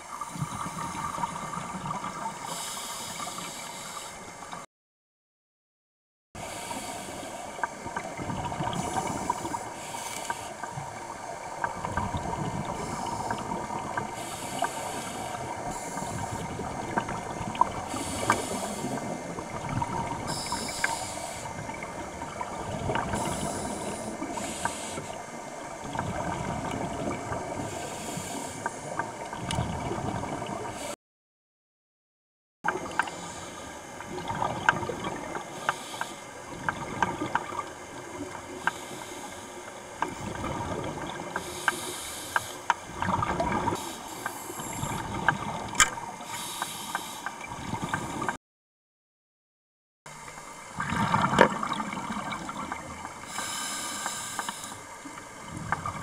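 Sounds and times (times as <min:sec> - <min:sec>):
bubbles hissing: 0:06.4 - 0:31.0, 0:40.1 - 0:48.4, 0:50.6 - 0:56.0.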